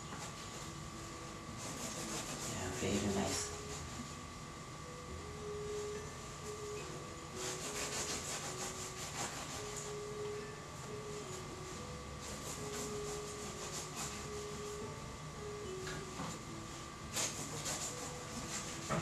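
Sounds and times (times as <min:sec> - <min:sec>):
knife sawing through doughnuts: 0:01.5 - 0:04.1, 0:07.4 - 0:10.0, 0:12.2 - 0:14.8, 0:17.1 - 0:19.0.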